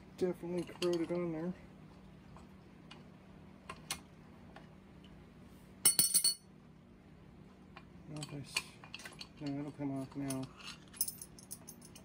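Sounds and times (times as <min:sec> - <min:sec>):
metal tools clinking together: 0:05.9 - 0:06.4, 0:08.2 - 0:12.0.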